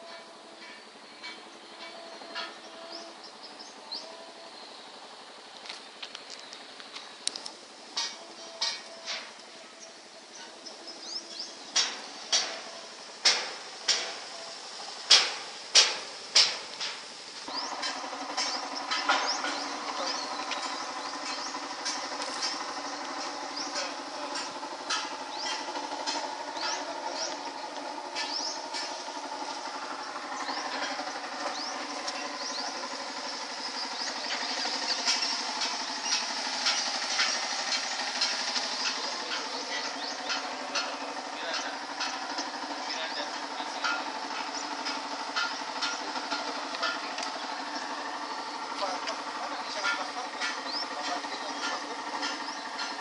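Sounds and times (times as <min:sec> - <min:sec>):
engine running: 0:00.0 - 0:53.0
sharp ringing knocks: 0:11.7 - 0:14.4, 0:15.0 - 0:48.0
scattered clicks: 0:41.6 - 0:48.0, 0:48.6 - 0:53.0.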